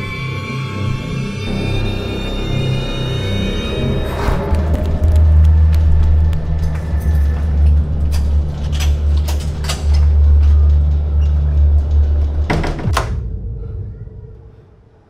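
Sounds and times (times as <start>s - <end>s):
low droning horror score: 0.0s - 15.0s
door banging: 12.2s - 13.2s.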